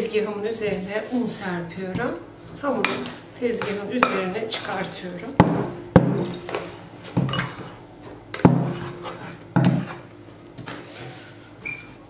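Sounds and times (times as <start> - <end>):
plastic scraper scraping dough: 8.6 - 10.1
high squeak: 11.6 - 12.0.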